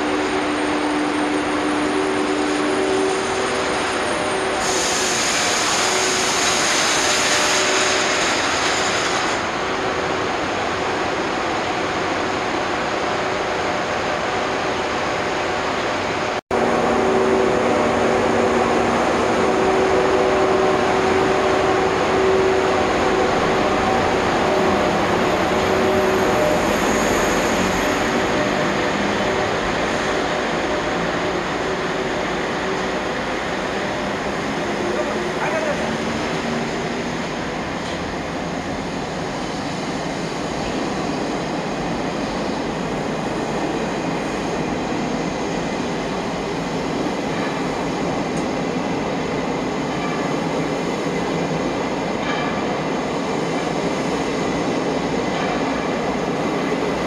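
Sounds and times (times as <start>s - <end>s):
locomotive humming tones: 0.0s - 5.2s, 9.5s - 57.0s
train wheels rumbling on rail: 0.0s - 57.0s
hiss: 3.1s - 9.6s.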